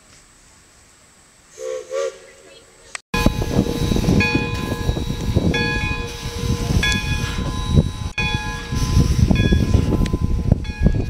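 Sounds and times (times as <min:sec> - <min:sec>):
low rumble: 0:03.2 - 0:11.0
steam locomotive bell ringing: 0:03.2 - 0:11.0.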